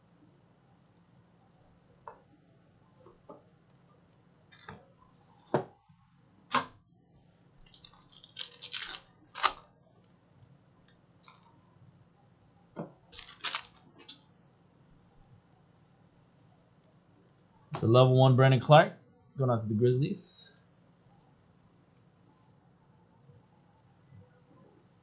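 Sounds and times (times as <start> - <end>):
foil wrapper crinkling: 7.6 - 9.7, 13.1 - 13.9.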